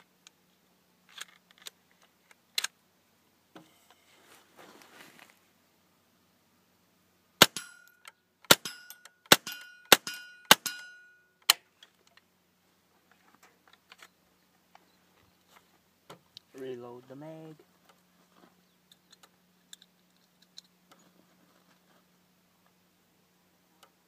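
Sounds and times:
rifle shots: 7.4s - 7.8s, 8.5s - 10.9s
metallic ring: 7.5s - 11.4s.

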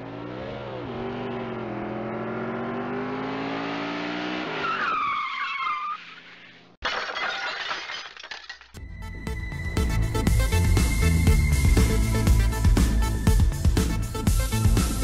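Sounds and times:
car engine revving: 0.0s - 4.6s
crash with breaking glass: 6.8s - 8.8s.

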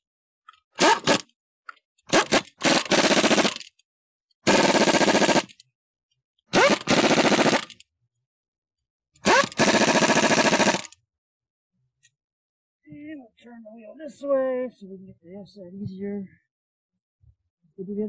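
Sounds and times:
air impact wrench hammering: 0.8s - 1.3s, 2.1s - 3.6s, 6.5s - 7.8s, 9.2s - 11.0s.

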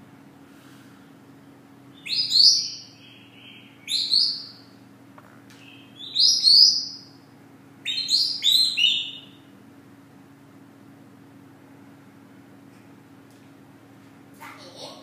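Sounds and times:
parrot whistling chirps: 2.0s - 4.6s, 5.6s - 7.1s, 7.8s - 9.4s.

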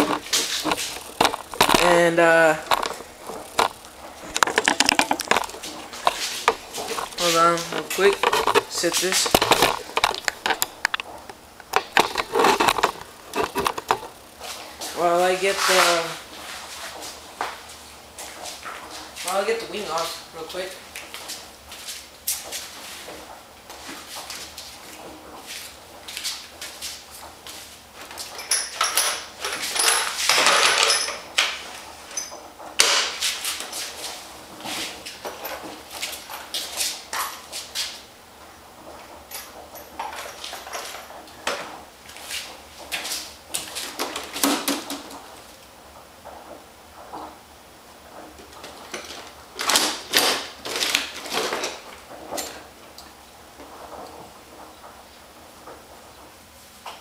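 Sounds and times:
tools handled at a workbench: 0.0s - 14.1s, 28.0s - 33.9s.

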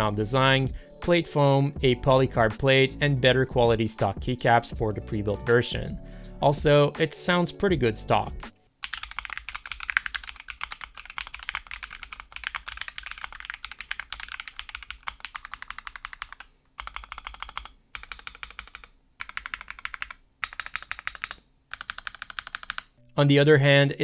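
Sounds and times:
mechanical keyboard typing: 8.8s - 23.0s.

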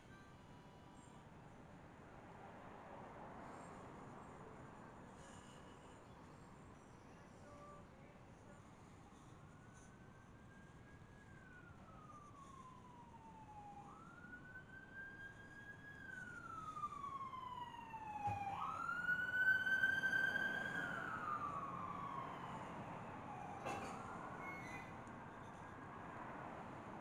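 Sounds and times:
emergency siren wailing: 9.8s - 26.8s.

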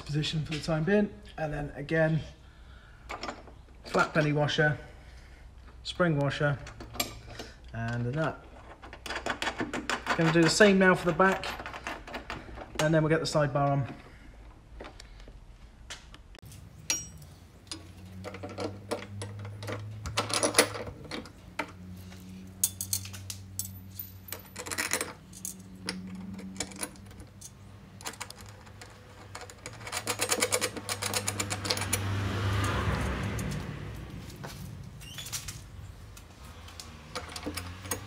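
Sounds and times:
metal washers and nuts clicking: 16.5s - 33.7s, 34.4s - 38.0s.

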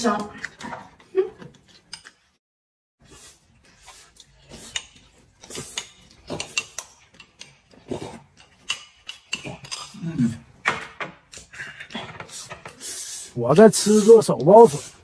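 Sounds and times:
noodles slurped and chewed: 0.0s - 2.4s, 3.0s - 10.6s.

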